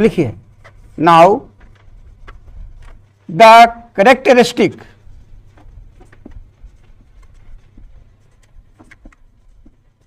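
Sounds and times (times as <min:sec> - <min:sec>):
marker squeaking on whiteboard: 0:05.0 - 0:10.0.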